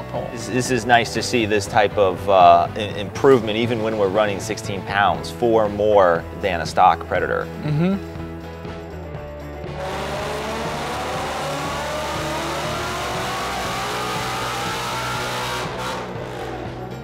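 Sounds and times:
car engine revving at full throttle: 0:09.6 - 0:17.0.

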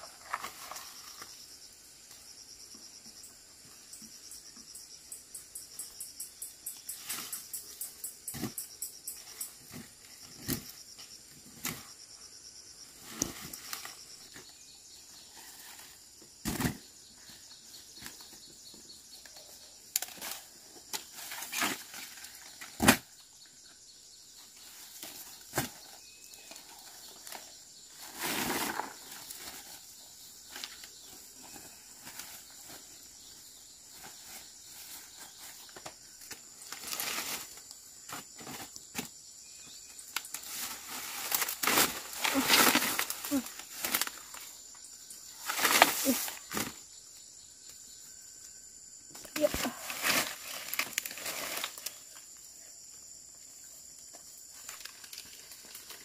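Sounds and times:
leaves and grass rustling: 0:00.0 - 0:01.5, 0:19.9 - 0:23.2, 0:24.4 - 0:39.1, 0:39.7 - 0:46.8, 0:49.2 - 0:52.5, 0:53.5 - 0:56.0
high insect drone: 0:00.0 - 0:56.0.

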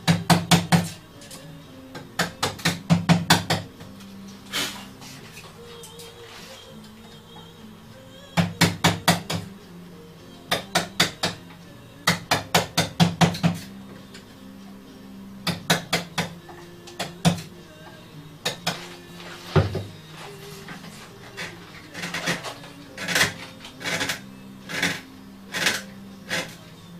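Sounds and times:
mallet tapping chisel into wood: 0:02.0 - 0:03.7, 0:10.5 - 0:11.4, 0:12.1 - 0:13.6, 0:15.4 - 0:17.4.

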